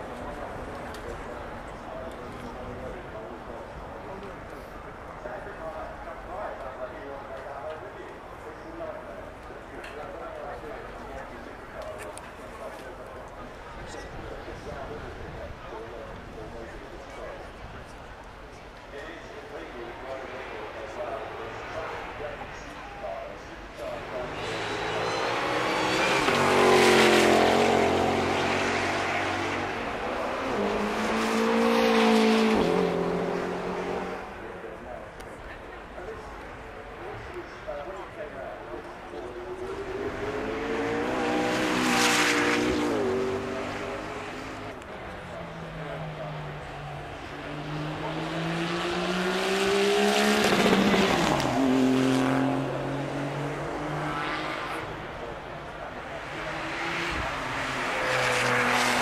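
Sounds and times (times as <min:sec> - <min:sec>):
racing car engines passing: 0:19.0 - 0:59.0.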